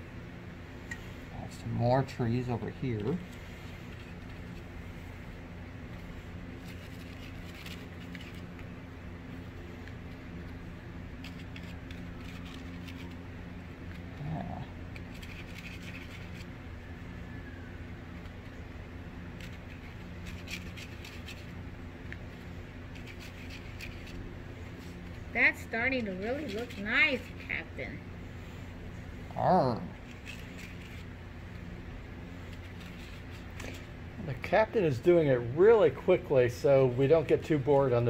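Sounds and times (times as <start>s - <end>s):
low room hum: 0.0s - 38.0s
brush rustling on paper: 5.9s - 8.7s, 11.2s - 13.3s, 14.9s - 16.6s, 19.2s - 29.3s, 29.9s - 34.0s.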